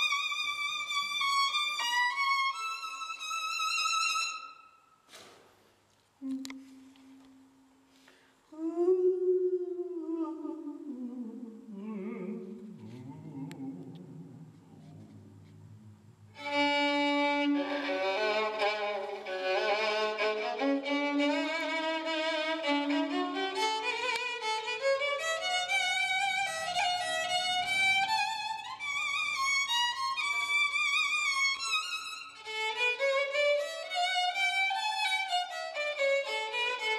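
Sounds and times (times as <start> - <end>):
violin melody: 0.0 - 4.8, 16.3 - 36.9.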